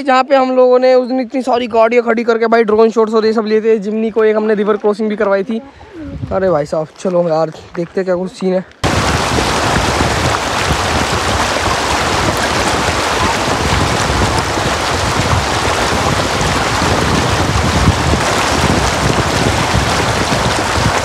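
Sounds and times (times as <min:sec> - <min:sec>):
river water rushing over stones: 0:08.8 - 0:21.0.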